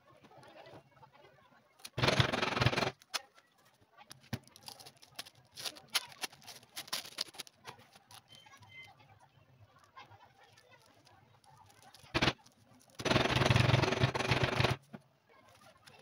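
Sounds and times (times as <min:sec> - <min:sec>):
plastic film rustling and crinkling: 0:03.0 - 0:08.9, 0:09.7 - 0:13.7, 0:14.8 - 0:16.0.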